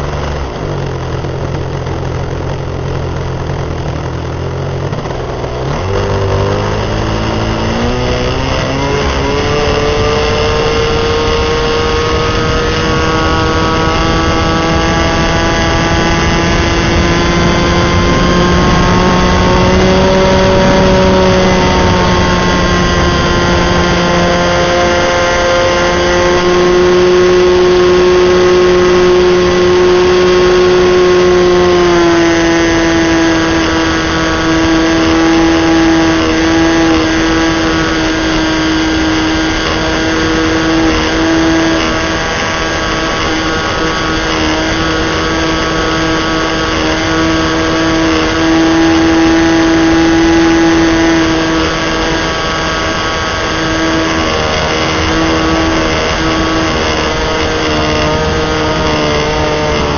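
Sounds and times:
wind rush: 0.0s - 31.3s
model airplane engine at high throttle: 0.0s - 59.9s.

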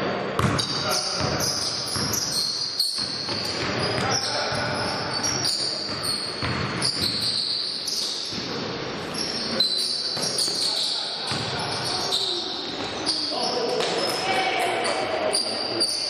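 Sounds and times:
players' voices: 0.0s - 2.6s, 3.2s - 6.9s, 7.9s - 16.0s
basketball bouncing: 0.4s - 2.4s, 3.0s - 7.4s, 11.3s - 11.6s
sneaker squeaks: 0.4s - 16.0s.

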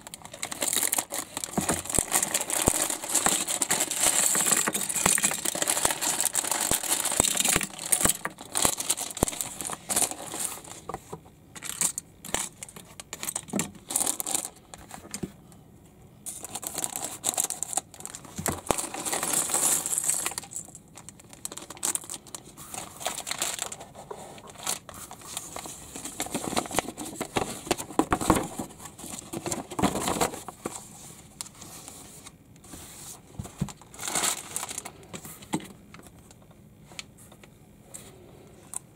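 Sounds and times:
plastic bags crinkling: 0.0s - 10.9s, 11.6s - 15.1s, 16.3s - 30.6s, 33.6s - 35.1s
plastic bricks clattering on table: 0.4s - 10.5s.

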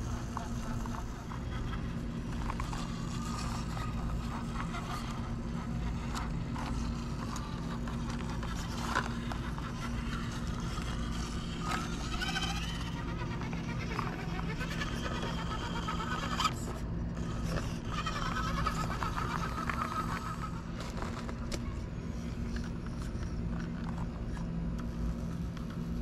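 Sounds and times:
electric motor and gears whirring: 0.0s - 26.0s.

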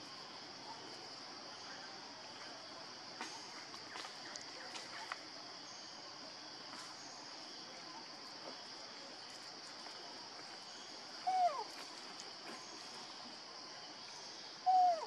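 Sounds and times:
high-pitched insect chorus: 0.0s - 15.0s.

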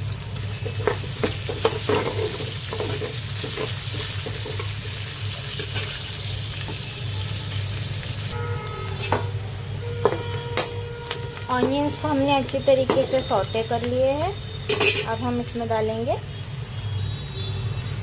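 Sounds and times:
onions sizzling in hot oil: 0.0s - 18.0s.

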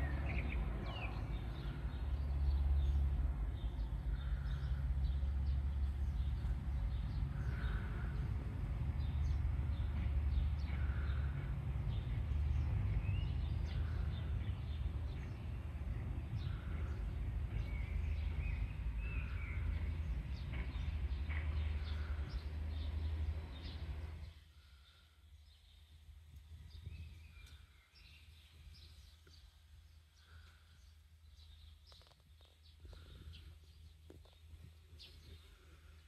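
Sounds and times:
birds calling: 0.0s - 26.0s, 26.7s - 36.0s.

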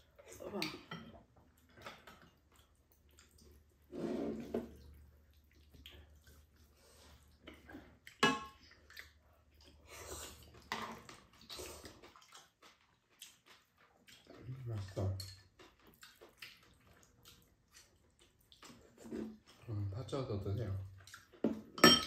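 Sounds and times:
slurping and chewing noodles: 1.5s - 19.7s, 20.8s - 21.7s
utensils clinking on dishes: 21.7s - 22.0s.

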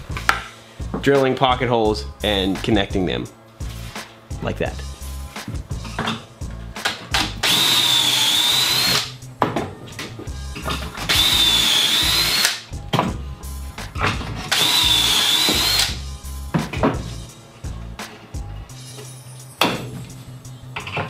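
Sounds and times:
drill whining cutting wood: 7.4s - 9.1s, 11.1s - 12.6s, 14.5s - 16.0s.

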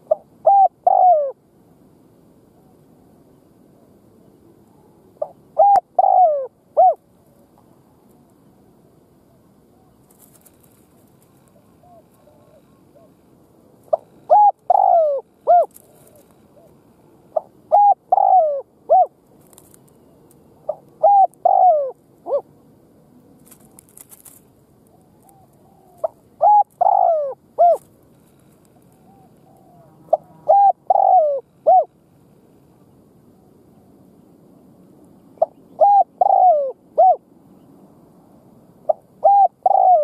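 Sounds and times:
dove cooing: 0.0s - 1.4s, 4.7s - 7.0s, 9.3s - 22.5s, 24.9s - 32.0s, 35.4s - 37.3s, 38.8s - 40.0s.

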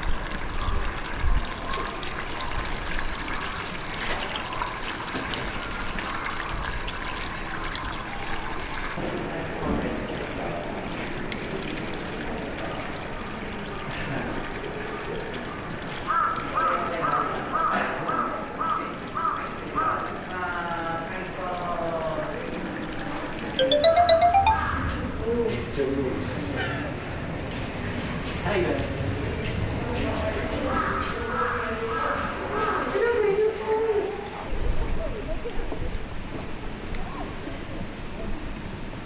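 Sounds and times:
short high chirps: 23.6s - 24.8s.

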